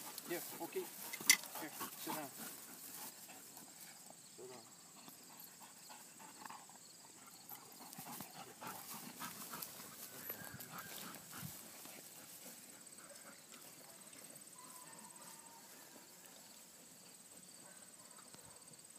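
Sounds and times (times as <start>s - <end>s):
soft clicks and rustles in grass: 7.8s - 14.4s.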